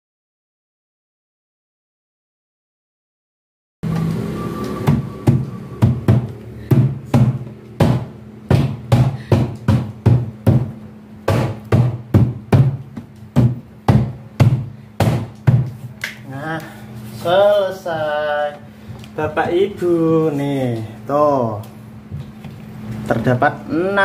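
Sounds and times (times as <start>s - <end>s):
low bass line: 3.8s - 8.9s
steady drum beat: 4.8s - 15.9s.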